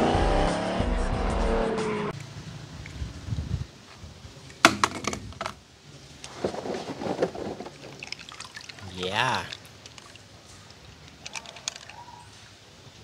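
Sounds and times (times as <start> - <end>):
plastic basket clicks and knocks: 4.6 - 5.6.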